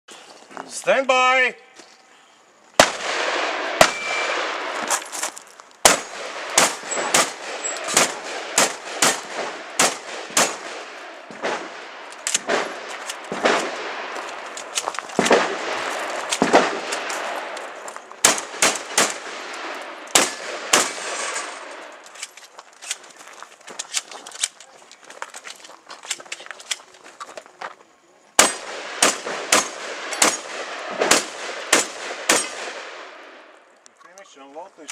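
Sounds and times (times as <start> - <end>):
shotgun shots with echo: 2.8 - 4.8, 5.8 - 14.2, 15.2 - 17.5, 18.2 - 21.7, 28.4 - 33.2.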